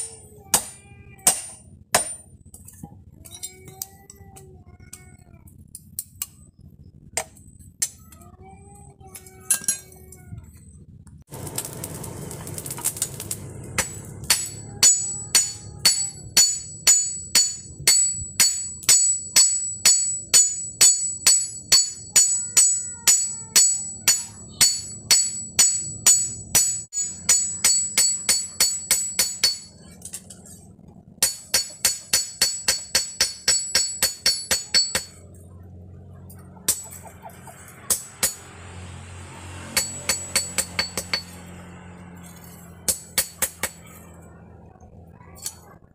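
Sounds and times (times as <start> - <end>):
hammer striking steel on anvil: 0.0 - 2.6, 12.9 - 30.3, 31.2 - 35.2, 36.6 - 38.6, 39.6 - 41.6, 42.3 - 44.1
metal clinks: 9.4 - 10.1.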